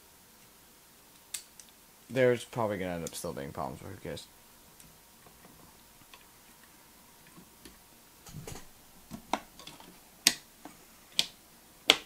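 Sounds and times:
handling noise: 5.2 - 10.0.

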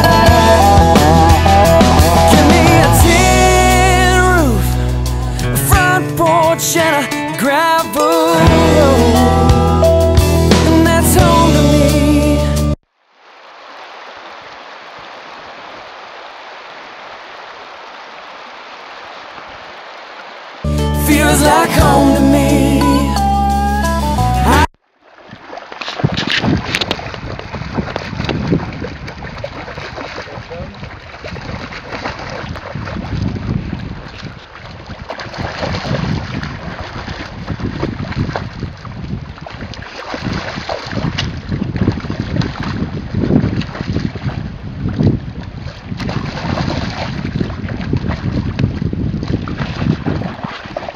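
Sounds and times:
river current over gravel: 12.9 - 20.7, 24.8 - 50.9
wind buffeting microphone: 26.0 - 50.9.

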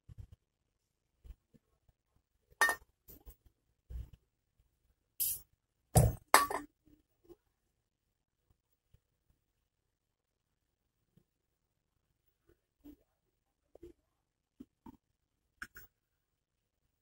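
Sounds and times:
spray can hiss: 5.2 - 5.5.

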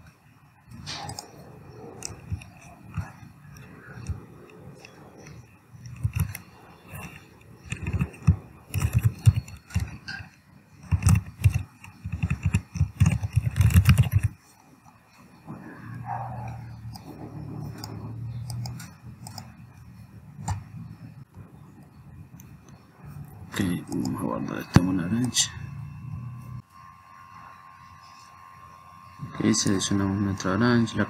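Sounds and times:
keyboard typing: 0.6 - 14.5, 16.4 - 20.8.

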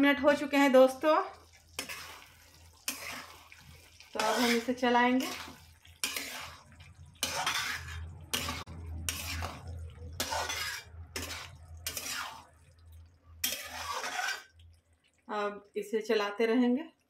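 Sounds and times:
spatula scraping curry in pan: 1.5 - 12.6, 13.4 - 14.5.

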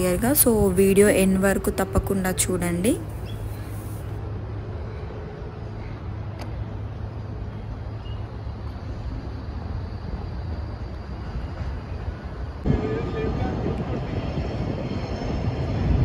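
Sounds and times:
distant road traffic rumble: 0.0 - 16.0
faint click: 6.4 - 6.6.

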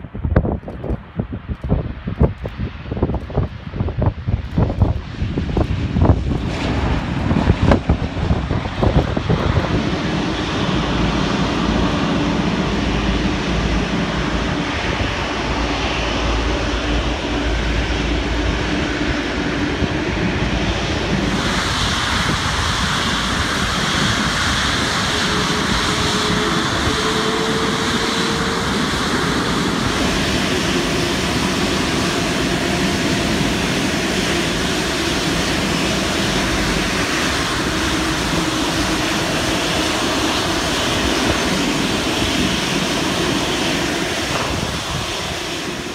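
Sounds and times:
jet engines at taxi power: 0.0 - 45.9.

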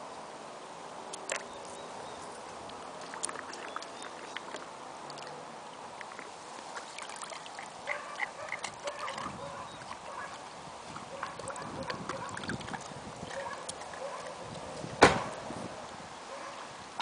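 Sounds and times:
dog lapping water: 2.7 - 5.4, 6.0 - 14.7.

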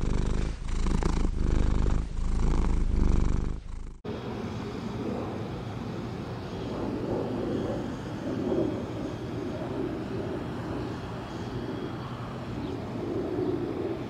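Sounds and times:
cat purring: 0.0 - 4.1
low background rumble: 0.0 - 14.0.

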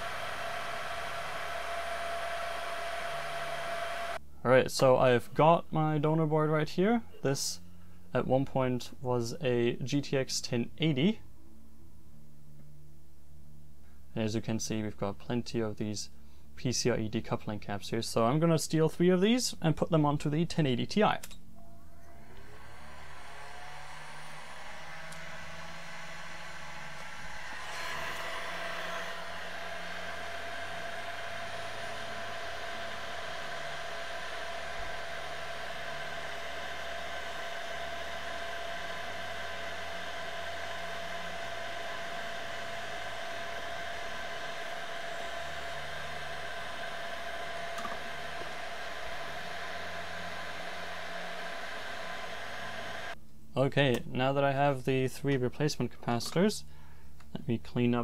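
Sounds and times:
electric blower whirring: 0.0 - 4.2, 22.0 - 53.2
steady whine: 0.0 - 4.2, 21.5 - 53.2.

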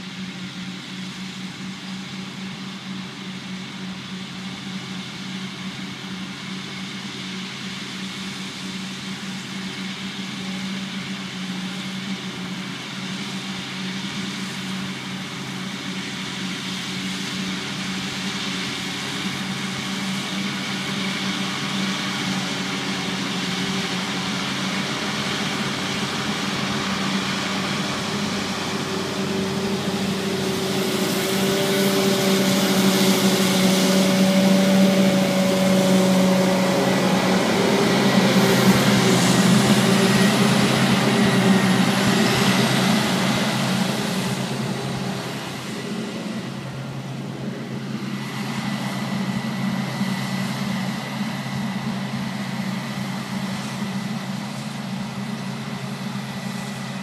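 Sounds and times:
diesel engines running: 0.0 - 57.0
tractor passing by: 13.0 - 57.0.

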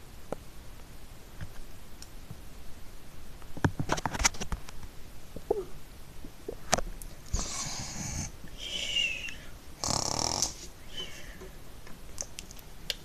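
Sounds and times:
person making snoring sounds: 7.3 - 10.7.

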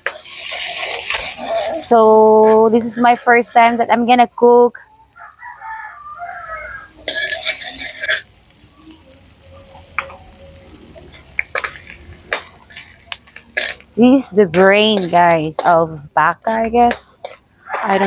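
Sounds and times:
metal ladle scraping a wok: 0.0 - 2.0, 6.8 - 8.5, 11.0 - 18.0
food frying in oil: 0.0 - 18.0.

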